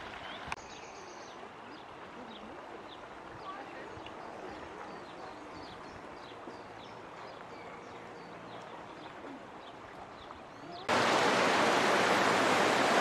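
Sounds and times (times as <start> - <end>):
stream rushing: 0.0 - 0.6, 10.9 - 13.0
small songbirds chirping: 0.1 - 10.9.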